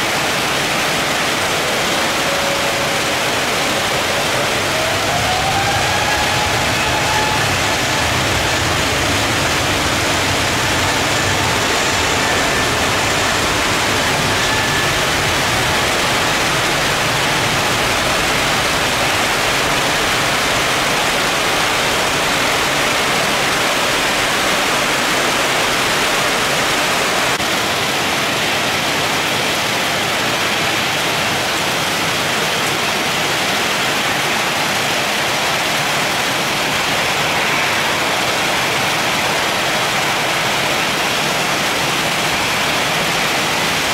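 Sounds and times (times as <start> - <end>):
heavy rain pouring: 0.0 - 43.9
low rumble: 3.7 - 23.4.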